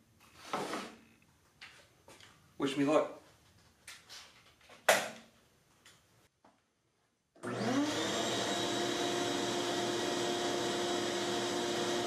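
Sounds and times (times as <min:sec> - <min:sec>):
shop vac motor running: 0:07.4 - 0:12.0.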